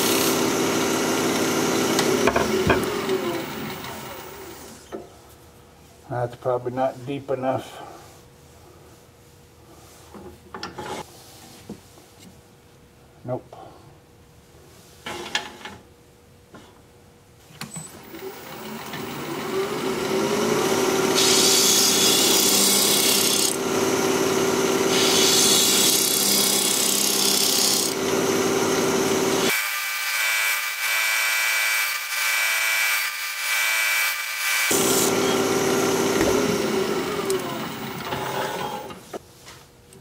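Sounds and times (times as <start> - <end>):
wood lathe humming: 0.0 - 4.8, 18.0 - 29.6, 30.9 - 39.0
gouge scraping spinning wood: 18.3 - 29.5.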